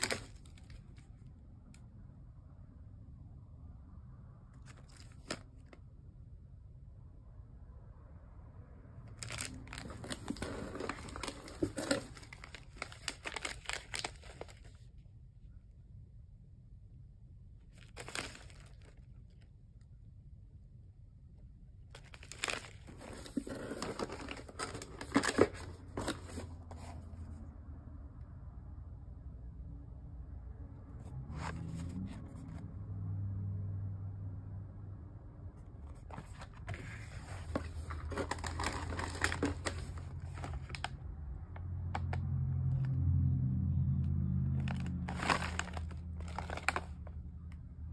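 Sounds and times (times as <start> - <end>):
plastic snack wrappers crinkling: 0.0 - 1.1, 4.6 - 5.8, 9.1 - 14.8, 17.7 - 19.5, 21.9 - 26.5, 36.0 - 41.0, 44.6 - 47.2
cardboard box rustling and tapping: 22.4 - 26.9, 36.1 - 40.8.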